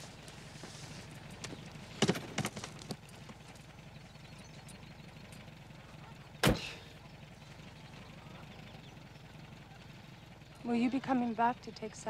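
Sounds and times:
car engine idling: 0.0s - 12.0s
car door slamming shut: 6.4s - 6.8s.

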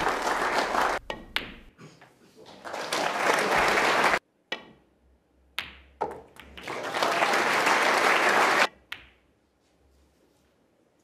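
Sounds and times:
audience applauding: 0.0s - 1.0s, 2.4s - 4.2s, 6.6s - 8.7s
snooker balls clicking: 1.0s - 1.7s, 5.5s - 6.7s.

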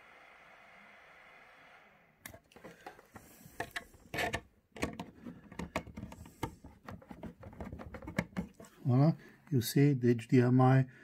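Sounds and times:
rubbing and rustling: 2.5s - 8.9s
plug clicks and knocks: 3.6s - 8.6s.

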